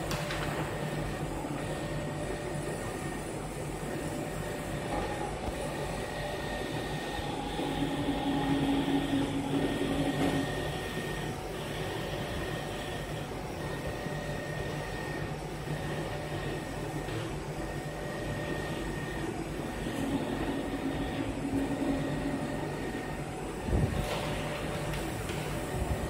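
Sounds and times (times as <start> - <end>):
machine motors and fans humming: 0.0 - 26.0
steady machine tone: 0.0 - 26.0.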